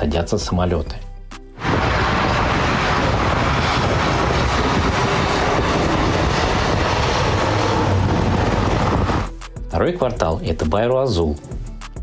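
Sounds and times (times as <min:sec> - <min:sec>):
airliner engine rush and rumble: 0:01.6 - 0:09.4.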